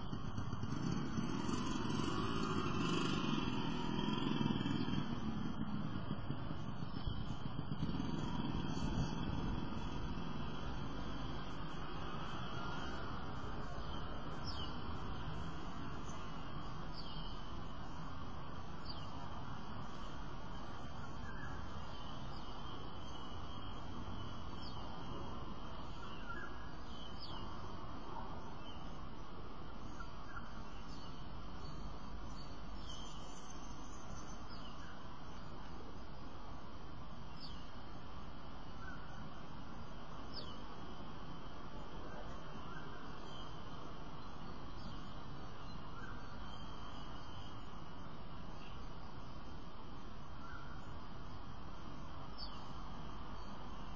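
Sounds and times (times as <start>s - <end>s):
outdoor background noise: 0.0s - 53.9s
faint high bird chirps: 18.8s - 27.6s, 29.8s - 35.7s, 37.3s - 37.8s, 38.8s - 39.4s, 40.2s - 40.7s, 41.8s - 48.0s, 50.3s - 51.0s, 52.3s - 53.9s.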